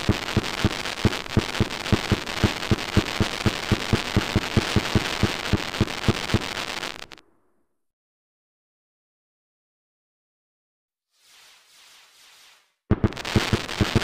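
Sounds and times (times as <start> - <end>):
fireworks bangs: 0.0 - 7.2, 11.5 - 14.0
fireworks crackling: 0.0 - 7.2, 11.2 - 14.0.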